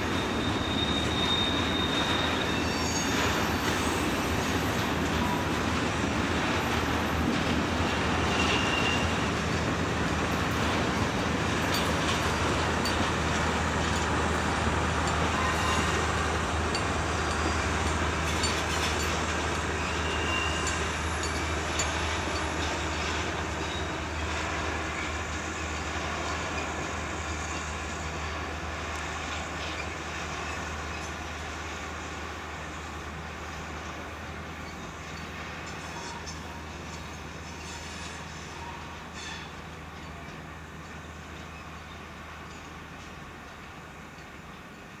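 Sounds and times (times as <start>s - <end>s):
high wheel squeals: 0.0s - 5.7s, 8.0s - 9.5s, 11.5s - 28.5s, 29.1s - 40.6s
train wheels rumbling on rails: 0.0s - 45.0s.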